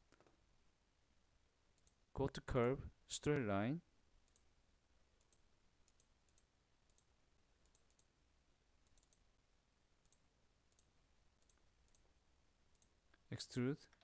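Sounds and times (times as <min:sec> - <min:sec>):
computer mouse clicks: 0:01.8 - 0:02.0, 0:04.2 - 0:04.5, 0:05.2 - 0:08.1, 0:08.8 - 0:09.2, 0:10.0 - 0:12.1, 0:12.7 - 0:13.2.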